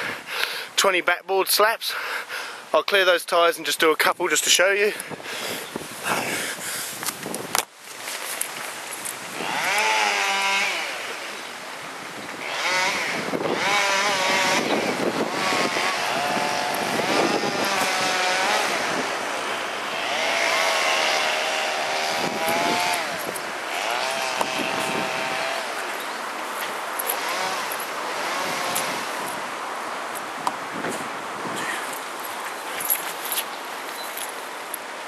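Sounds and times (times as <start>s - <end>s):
small engine revving: 9.3s - 11.3s, 12.4s - 26.0s, 27.0s - 29.4s.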